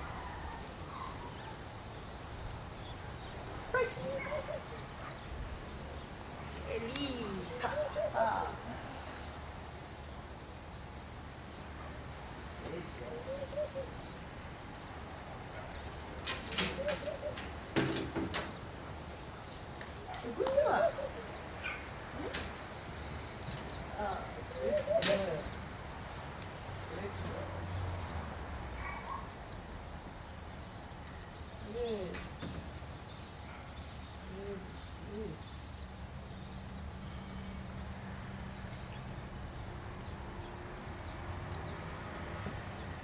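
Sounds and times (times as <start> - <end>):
bird cooing: 3.8 - 5.2, 6.8 - 9.1, 13.0 - 14.1, 16.5 - 17.5, 20.4 - 22.5, 24.0 - 25.6, 34.2 - 35.5.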